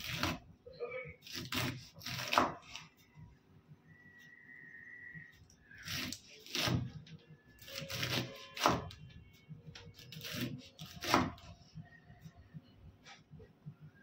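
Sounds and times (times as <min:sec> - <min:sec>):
knife chopping on wooden board: 0:01.2 - 0:02.8, 0:05.8 - 0:07.0, 0:07.6 - 0:09.0, 0:10.0 - 0:11.4.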